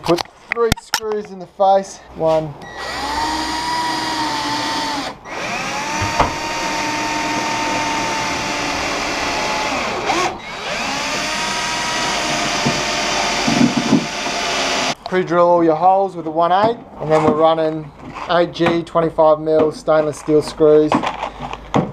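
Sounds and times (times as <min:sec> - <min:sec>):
cordless drill spinning: 0:02.6 - 0:15.0.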